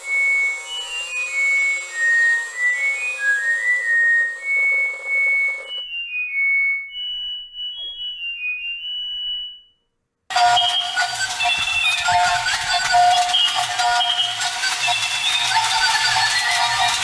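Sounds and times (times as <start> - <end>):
toy whirring hiss: 0.0 - 5.8, 10.3 - 17.0
loud electronic toy song: 0.0 - 9.6, 10.3 - 17.0
electronic beeping tune: 4.1 - 17.0.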